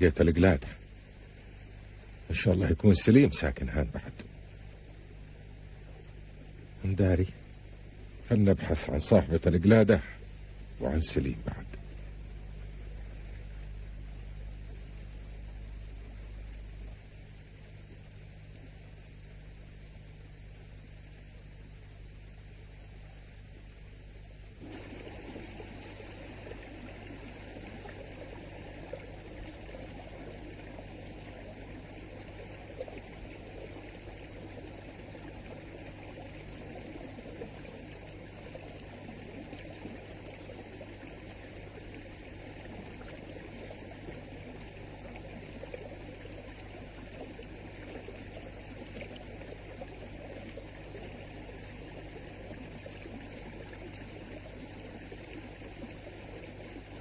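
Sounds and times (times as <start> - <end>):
low electrical hum: 0.0 - 57.0
stream flowing over rocks: 24.6 - 57.0.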